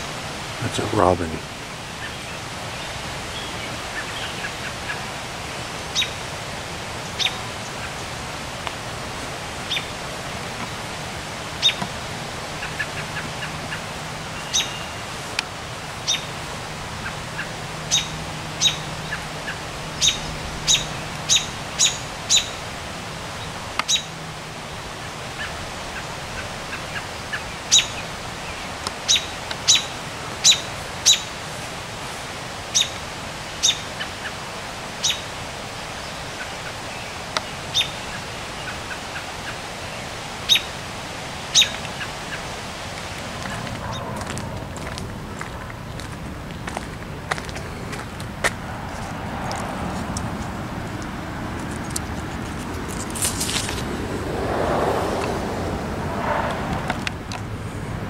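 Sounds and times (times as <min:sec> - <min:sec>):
steady hiss: 0:00.0 - 0:43.9.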